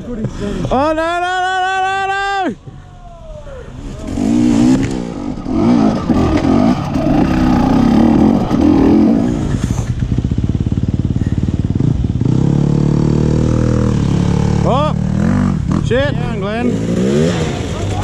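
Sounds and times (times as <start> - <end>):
dirt bike engine revving: 3.8 - 18.0.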